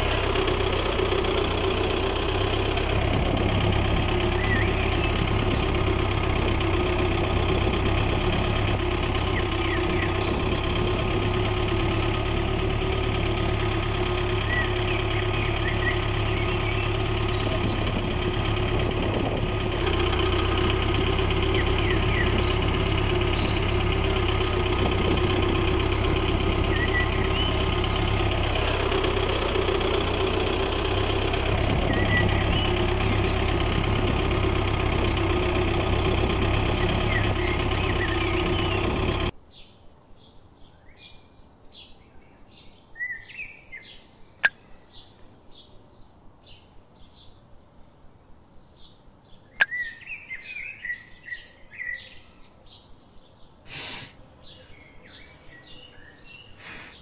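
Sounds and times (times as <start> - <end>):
small motor running: 0.0 - 39.3
birds chirping: 0.0 - 45.8, 48.6 - 57.0.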